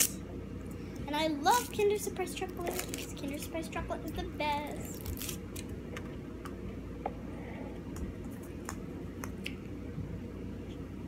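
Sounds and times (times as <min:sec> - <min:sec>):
foil wrapper crinkling: 0:01.5 - 0:03.6.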